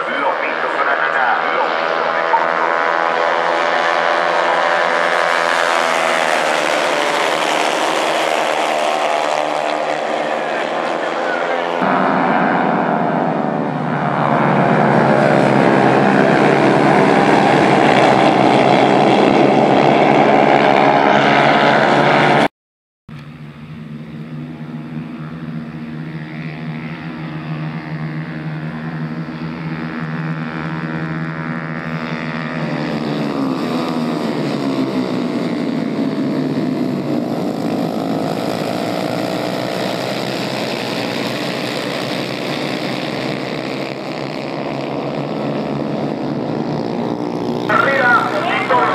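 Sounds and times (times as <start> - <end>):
racing motorcycles at high revs: 0.0 - 22.5.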